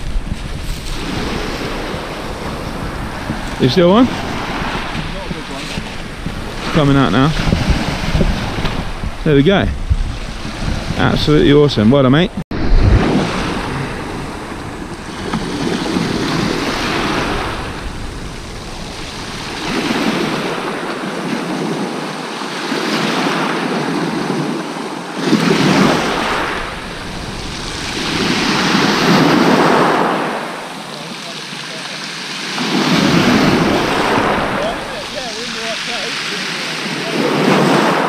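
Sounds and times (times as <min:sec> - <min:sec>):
small waves breaking on shingle: 0:25.3 - 0:38.0.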